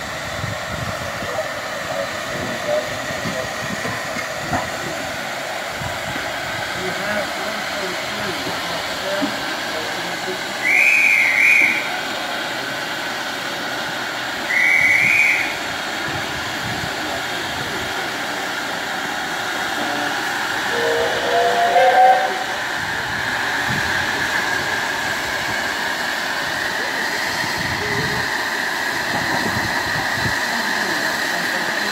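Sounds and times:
hiss of escaping steam: 0.0s - 31.9s
steam locomotive whistle: 10.6s - 12.0s, 14.4s - 15.6s, 19.8s - 22.7s.

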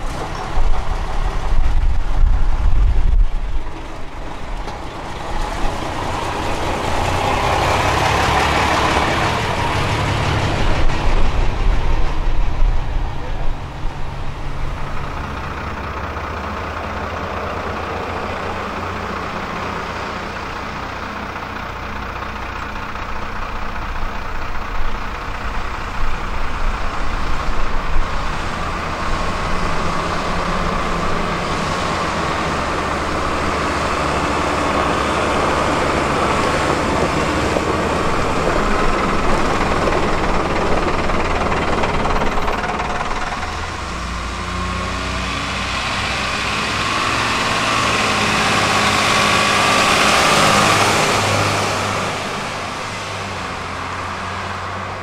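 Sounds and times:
bus engine running: 0.0s - 55.0s
steady whine: 29.4s - 47.0s.

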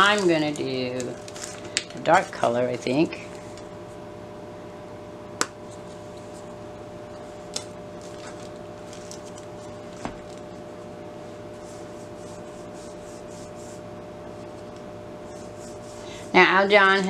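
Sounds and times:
electrical hum: 0.0s - 17.0s
paintbrush swishing on paper: 11.5s - 14.6s, 15.2s - 16.6s.

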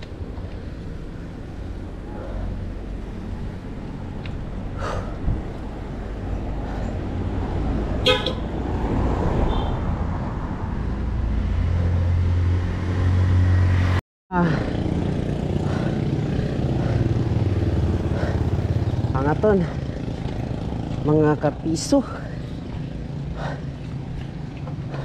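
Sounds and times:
wind buffeting microphone: 3.4s - 8.0s
bike tyre rumble on pavement: 14.5s - 25.0s.

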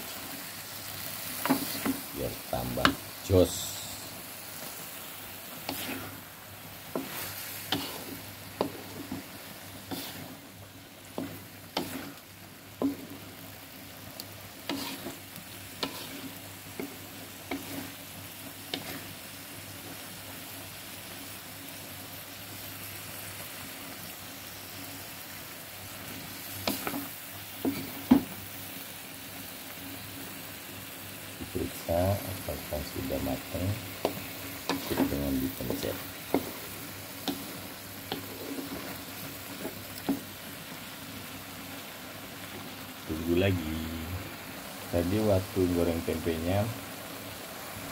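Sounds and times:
food sizzling in a wok: 0.0s - 47.9s
spatula scraping and knocking pan: 1.4s - 2.1s, 5.6s - 6.2s, 6.9s - 10.4s, 11.1s - 12.2s, 12.8s - 13.2s, 14.6s - 18.0s, 18.7s - 19.1s, 26.6s - 28.4s, 33.0s - 40.3s.

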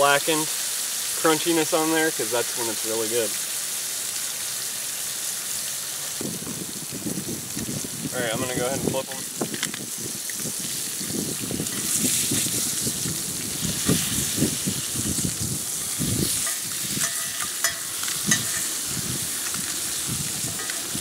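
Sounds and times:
fish sizzling in butter: 0.0s - 21.0s
utensils scraping and knocking pan: 16.3s - 18.8s, 20.4s - 21.0s.

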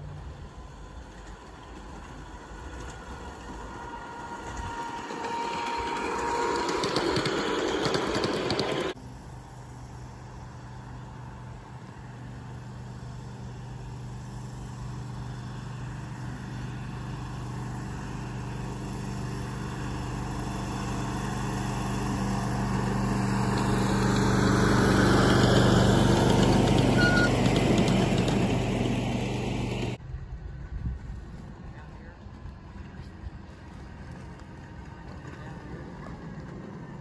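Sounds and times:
miniature train engine humming: 0.0s - 30.0s, 32.4s - 37.0s.

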